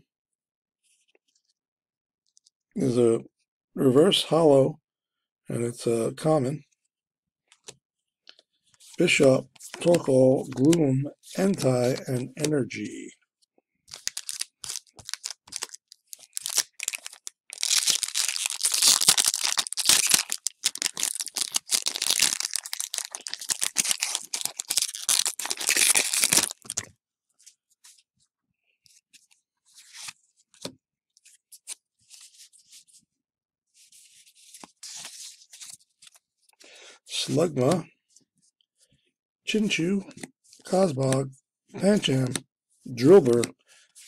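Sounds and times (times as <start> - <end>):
cards rustling and clicking: 8.8 - 12.6, 13.9 - 26.9, 41.8 - 42.4, 43.0 - 43.5
foil wrapper tearing and crinkling: 13.9 - 26.9.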